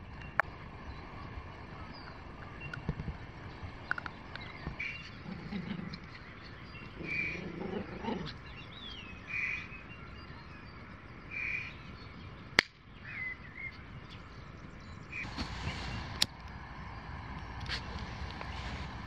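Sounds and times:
birds calling: 0:00.0 - 0:19.0
quick gliding bird chirps: 0:14.9 - 0:19.0.

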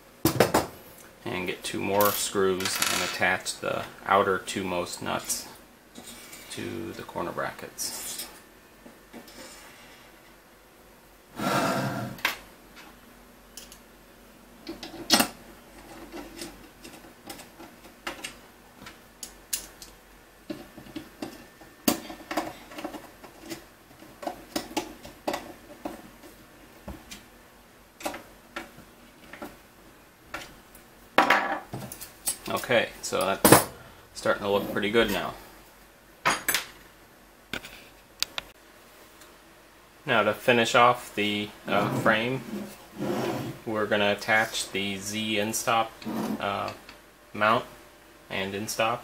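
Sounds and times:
loud scrape: 0:11.4 - 0:12.2, 0:41.7 - 0:43.6, 0:46.0 - 0:46.4.

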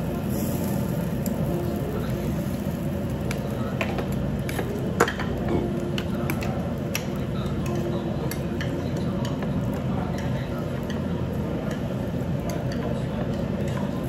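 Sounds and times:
low restaurant hum: 0:00.0 - 0:14.0
chopsticks clicking against dishes: 0:04.5 - 0:09.5.

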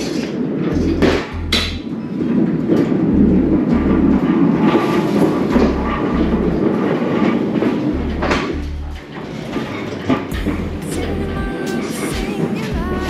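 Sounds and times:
low double pulse: 0:00.0 - 0:09.2
pallet jack rolling and rattling: 0:00.0 - 0:13.0.

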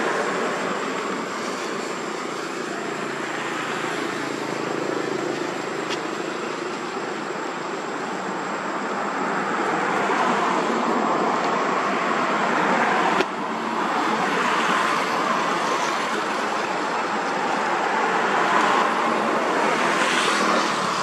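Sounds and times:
steady rushing outdoor noise: 0:00.0 - 0:21.0.

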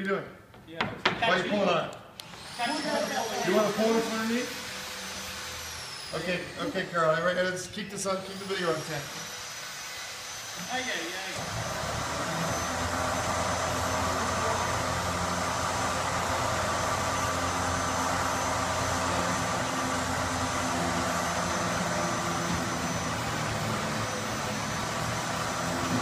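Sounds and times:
steady mechanical drone: 0:08.1 - 0:26.0.

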